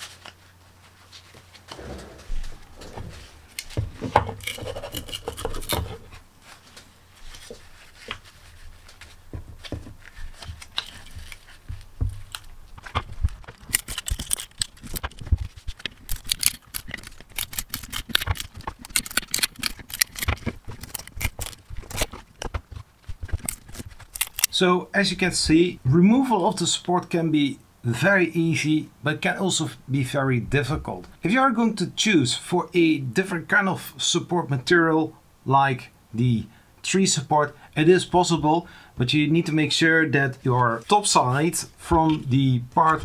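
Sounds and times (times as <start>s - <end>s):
handling rustle and knocking: 0.0s - 24.5s
plastic snapping and cracking: 12.2s - 24.5s.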